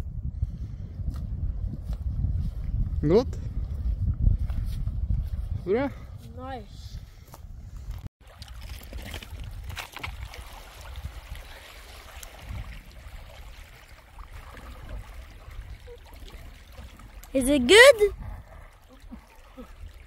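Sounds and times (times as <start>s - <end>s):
rush of flowing water: 8.2s - 20.0s.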